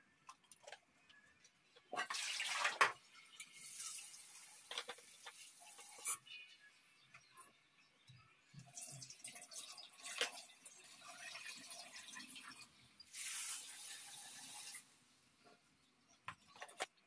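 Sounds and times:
salt pouring into bowl: 13.1 - 14.8.

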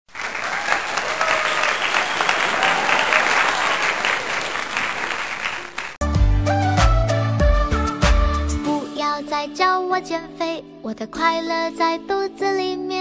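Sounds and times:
crowd applause: 0.1 - 6.0
pop song with heavy bass: 6.0 - 10.2.

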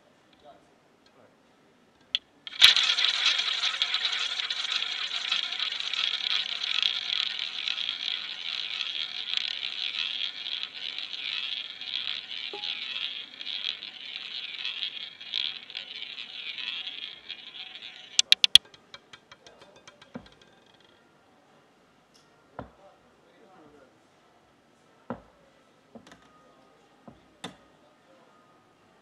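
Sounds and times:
roulette ball whirring: 2.1 - 20.9.

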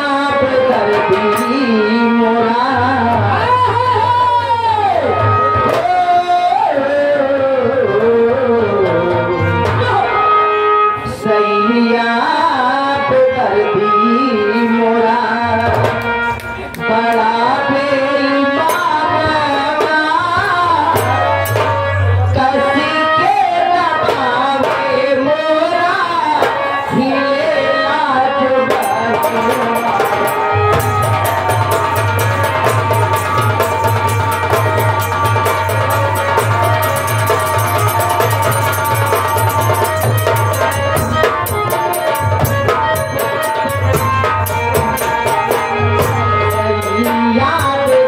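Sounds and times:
person singing through microphone: 0.0 - 48.0
hand drumming: 28.7 - 48.0
sharp clicking percussion: 28.7 - 48.0.

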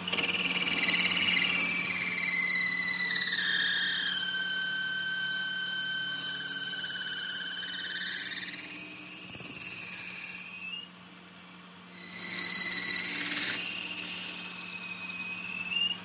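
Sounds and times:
lathe tool squealing on metal: 0.0 - 10.9, 11.9 - 16.0.

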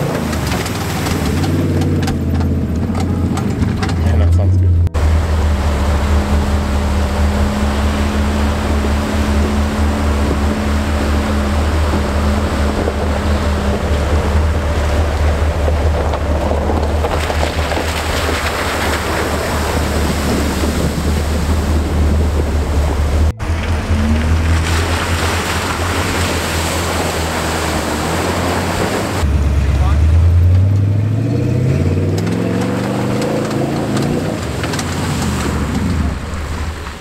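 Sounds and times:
water splashing off tyres: 0.0 - 4.3, 5.0 - 30.9, 31.5 - 37.0
wind rumble on microphone: 0.0 - 29.3
car engine running: 0.0 - 37.0.

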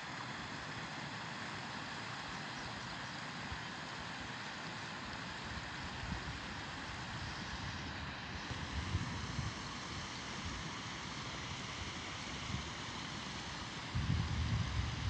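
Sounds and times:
wind buffeting microphone: 13.9 - 15.0.

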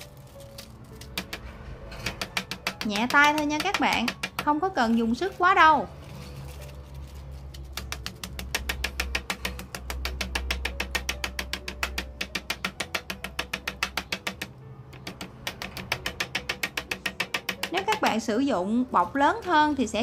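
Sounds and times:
music with fast ticking beat: 2.1 - 4.6, 7.7 - 18.2.

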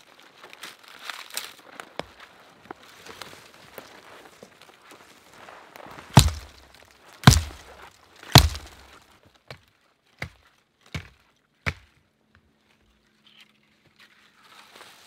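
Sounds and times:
hatchet chopping wood: 6.2 - 9.6, 10.2 - 12.0.

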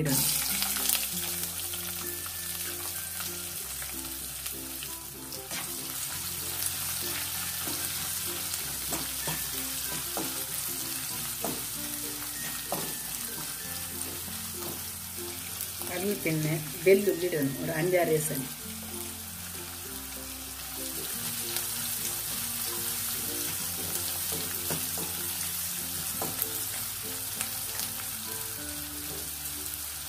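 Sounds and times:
light instrumental music: 0.0 - 30.0
onions sizzling in hot oil: 0.0 - 30.0
spatula scraping and tapping pan: 8.7 - 10.5, 23.4 - 26.7.

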